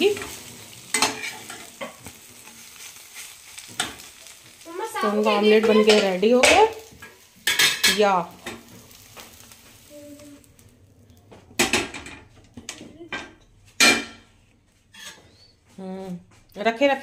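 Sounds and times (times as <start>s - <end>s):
metal spatula clanking on steel plate: 0.2s - 2.0s, 5.6s - 8.7s.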